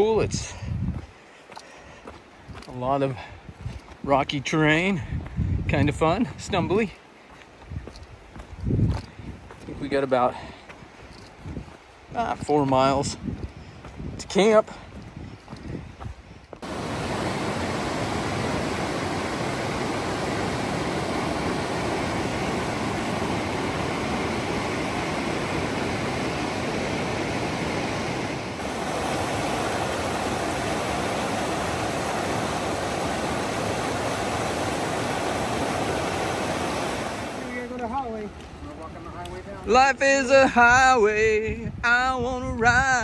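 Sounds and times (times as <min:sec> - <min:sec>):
river water rushing: 0:16.6 - 0:39.8.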